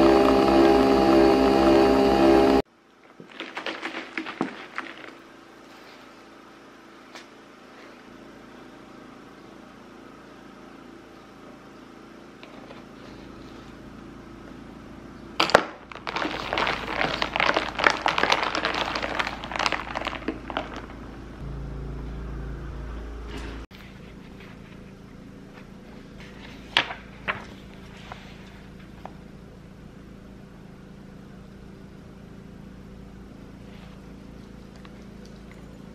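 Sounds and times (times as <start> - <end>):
steady low hum: 0.0 - 3.0, 4.4 - 35.9
ice rattling in plastic tumbler: 3.0 - 6.0, 15.4 - 21.2.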